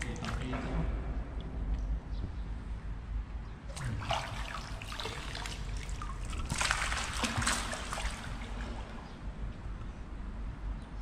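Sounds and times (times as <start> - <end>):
seawater trickling and splashing: 3.7 - 9.4.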